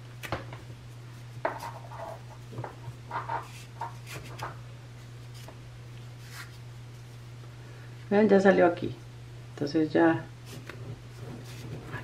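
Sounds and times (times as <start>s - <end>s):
cloth and cord rustling: 10.5s - 12.0s.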